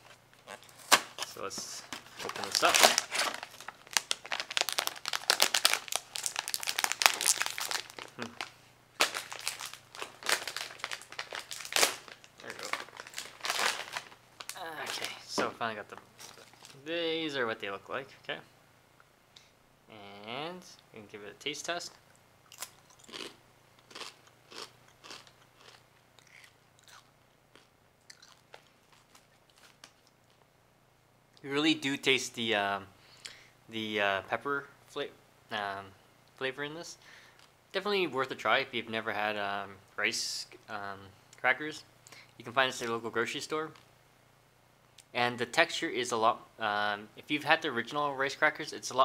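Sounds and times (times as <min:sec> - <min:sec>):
plastic bag crinkling: 0:00.4 - 0:16.8
crunchy rice cracker chewing: 0:22.5 - 0:30.4.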